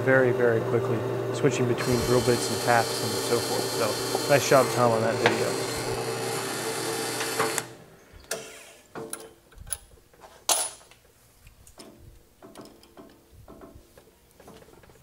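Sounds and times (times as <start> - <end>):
drill press running: 0.2 - 8.7
metallic clicks and knocks: 11.6 - 15.0.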